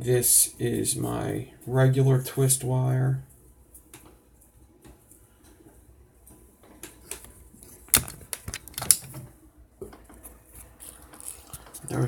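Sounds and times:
sharp loud clicks: 7.9s - 9.1s.

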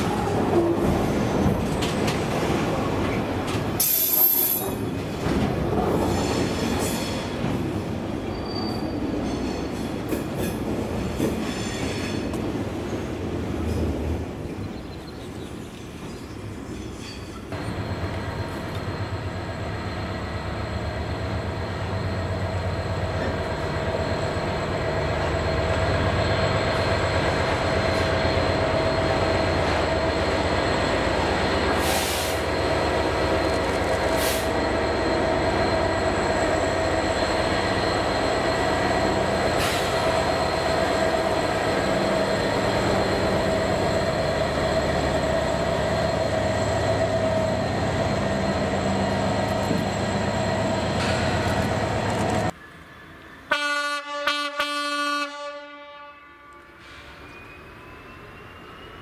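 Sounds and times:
diesel locomotive engine running: 17.5s - 53.6s.

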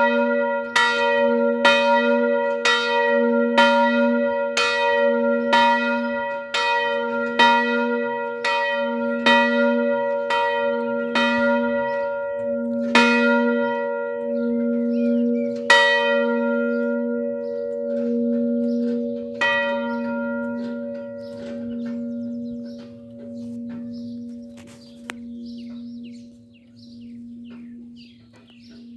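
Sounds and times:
church bell ringing: 0.0s - 28.9s
deep bell hum: 7.4s - 28.9s.

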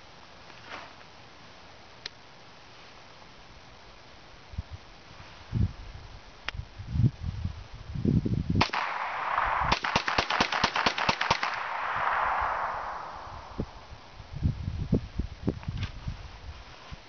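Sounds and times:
rifle gunshots: 8.6s - 14.0s
gunshot echo: 8.6s - 14.1s.

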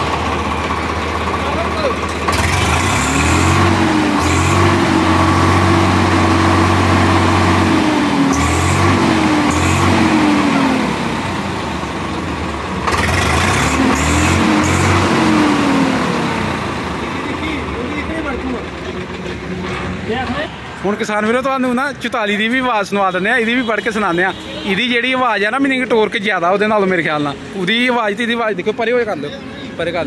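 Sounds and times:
tractor diesel engine revving: 0.0s - 22.6s.

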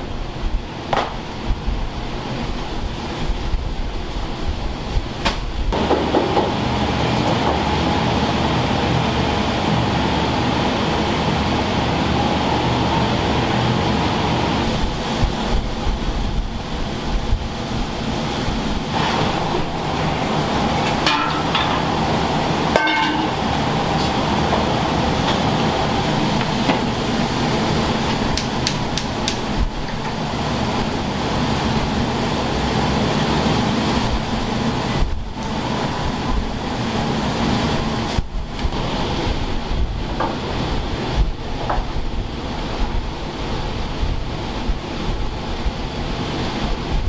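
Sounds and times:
kitchen rumbling roar: 0.0s - 47.0s
utensils clattering: 20.8s - 22.0s, 22.7s - 24.2s.

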